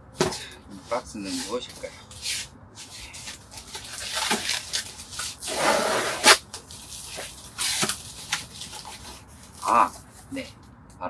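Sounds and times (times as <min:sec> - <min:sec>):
cardboard packaging rustling and tearing: 0:03.0 - 0:10.0.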